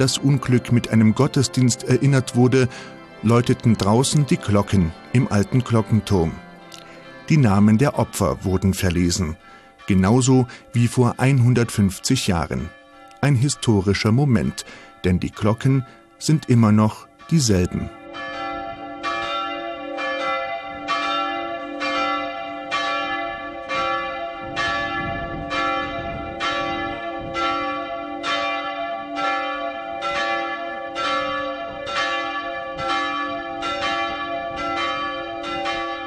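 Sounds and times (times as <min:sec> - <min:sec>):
church bells ringing: 0:00.0 - 0:36.0.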